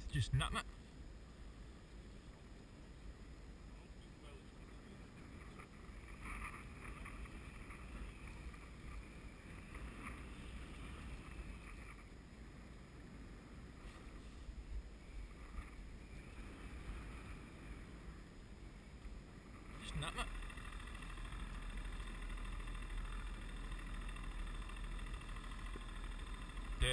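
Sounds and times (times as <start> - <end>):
faint high-pitched hum: 0.0 - 26.9
wind rumbling on microphone: 0.0 - 26.9.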